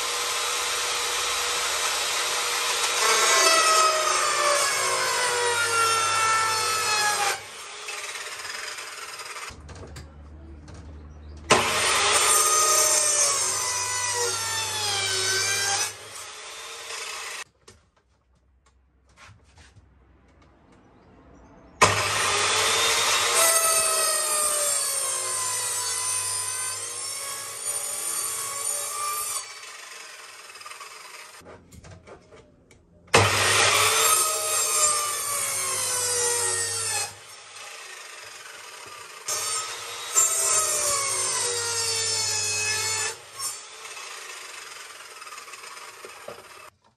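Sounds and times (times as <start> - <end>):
mitre saw cutting wood: 0.0 - 9.6, 11.5 - 17.5, 21.8 - 31.5, 33.1 - 46.7.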